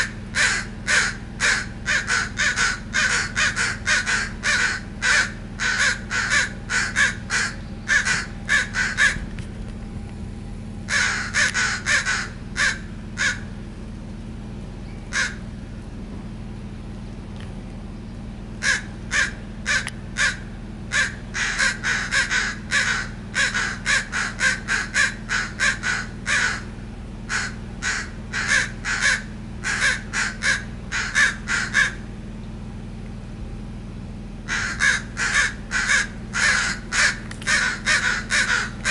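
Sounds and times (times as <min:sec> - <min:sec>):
crows cawing: 0:00.0 - 0:09.3, 0:10.8 - 0:13.6, 0:15.1 - 0:15.6, 0:18.6 - 0:32.2, 0:34.4 - 0:38.9.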